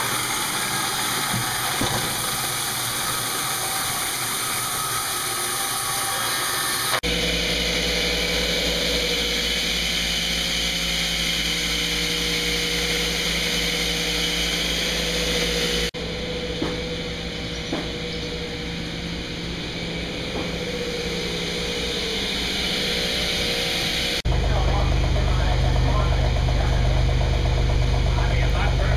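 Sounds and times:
sawmill machinery running: 0.0s - 28.9s
sharp wooden knocks: 1.2s - 2.6s, 17.7s - 18.0s.

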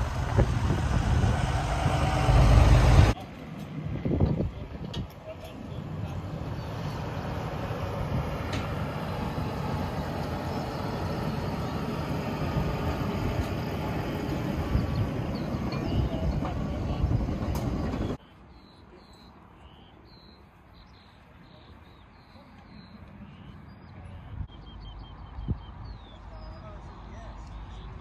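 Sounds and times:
heavy truck rumbling past: 0.0s - 4.8s, 5.5s - 18.2s.

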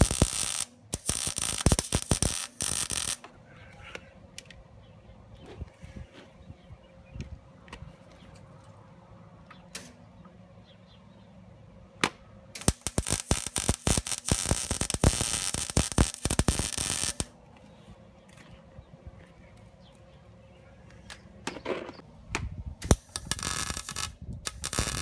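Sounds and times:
welder arc crackling: 0.0s - 3.3s, 12.5s - 17.4s, 22.8s - 25.0s.

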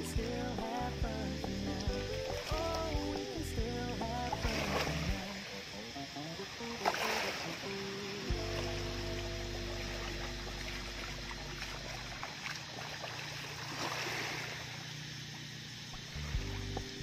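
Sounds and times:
faint low music: 0.0s - 14.0s, 14.6s - 17.0s
wading splashes: 1.8s - 17.0s
seawater sloshing around legs: 6.7s - 15.1s.

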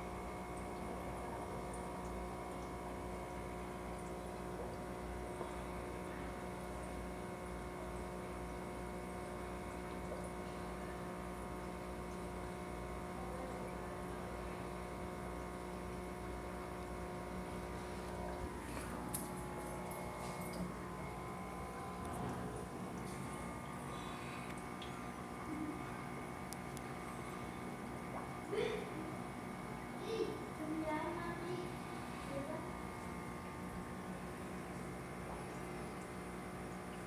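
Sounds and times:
aquarium equipment humming: 0.0s - 37.0s.

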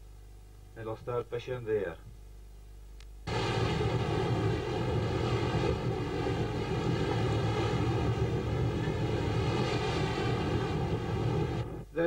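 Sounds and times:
rough sea: 3.3s - 11.8s
wind rushing: 3.3s - 11.9s
boat diesel engine drone: 3.3s - 12.0s.

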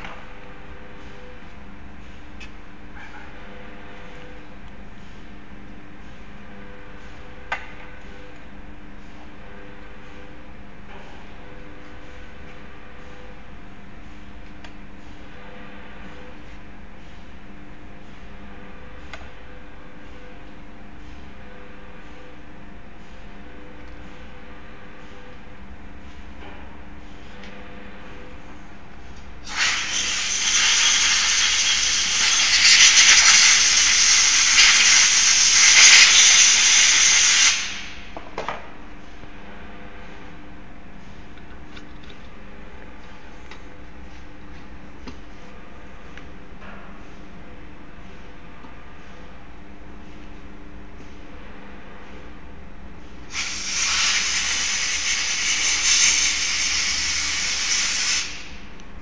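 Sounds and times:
pressurised air hissing: 29.4s - 38.1s, 53.3s - 58.6s.

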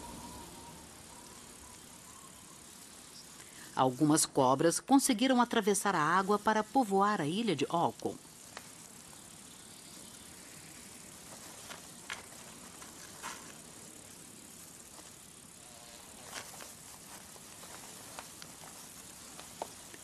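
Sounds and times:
faint outdoor hiss: 0.0s - 20.0s
light clicks and ticks: 8.0s - 9.2s, 16.3s - 20.0s.

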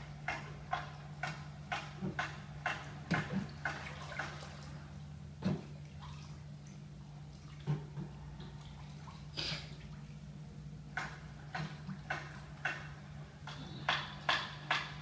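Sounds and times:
bathwater splashing: 0.0s - 13.0s
steady low hum: 0.0s - 15.0s.

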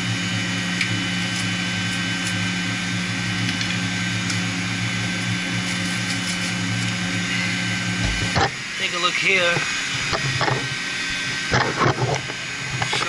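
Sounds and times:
water pump machinery hum: 0.0s - 13.0s.

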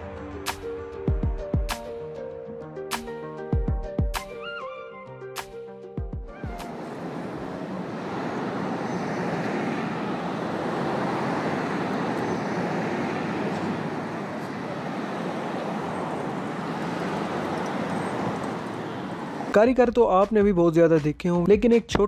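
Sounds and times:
cars passing on road: 6.3s - 19.7s.

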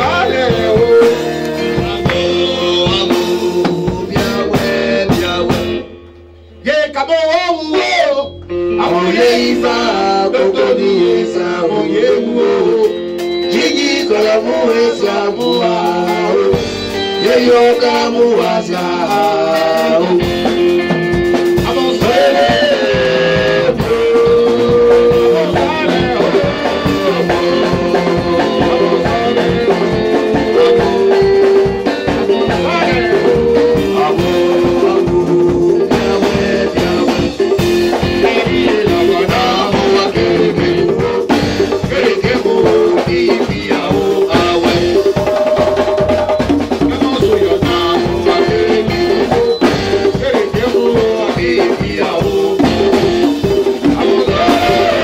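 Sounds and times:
man singing into a microphone: 0.0s - 5.9s, 6.6s - 55.0s
instrumental accompaniment: 0.0s - 55.0s.

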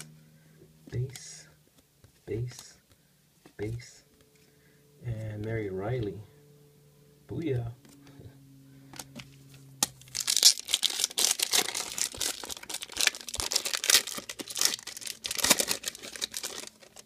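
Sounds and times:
foil wrapper tearing and crinkling: 9.8s - 17.0s.

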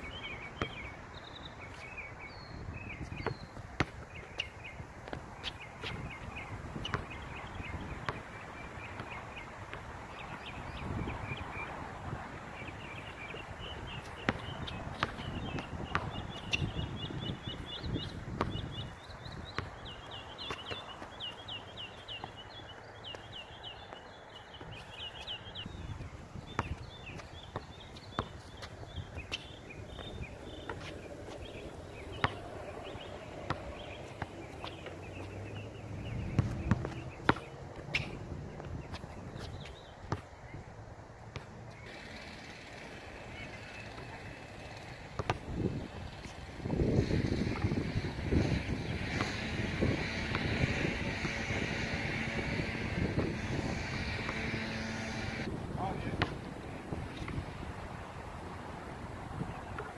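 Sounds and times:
small birds chirping: 0.0s - 40.7s, 41.3s - 56.2s
basketball bouncing on hard court: 3.0s - 4.4s, 6.8s - 8.3s, 13.8s - 21.4s, 26.5s - 31.4s, 32.0s - 40.2s, 45.2s - 45.6s, 46.9s - 55.5s, 56.1s - 56.4s.

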